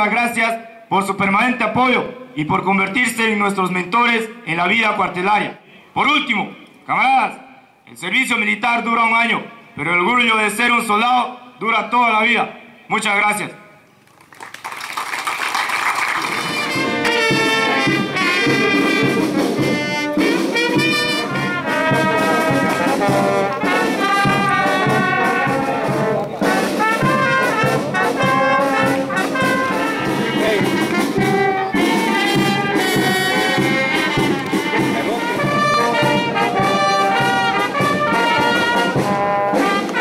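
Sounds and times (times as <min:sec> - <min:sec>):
brass band playing: 0:15.6 - 0:40.0.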